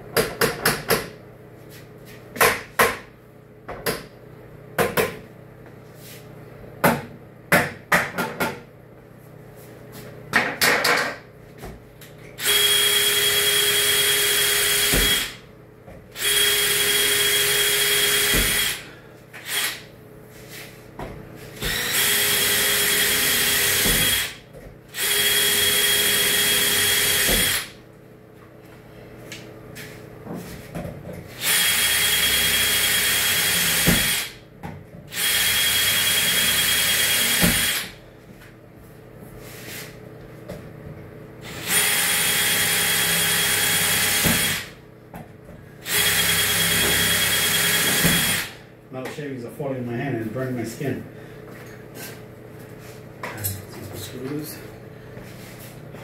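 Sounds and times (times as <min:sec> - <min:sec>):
cordless drill running: 0:12.4 - 0:15.4, 0:16.2 - 0:18.8, 0:19.4 - 0:19.8, 0:21.6 - 0:27.7, 0:31.3 - 0:34.4, 0:35.1 - 0:38.0, 0:41.4 - 0:44.8, 0:45.8 - 0:48.6.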